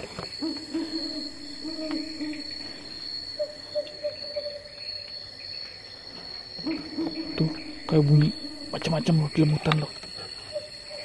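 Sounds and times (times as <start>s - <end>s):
high-pitched insect drone: 0.0s - 11.0s
low hooting calls: 0.4s - 4.7s, 6.6s - 9.5s.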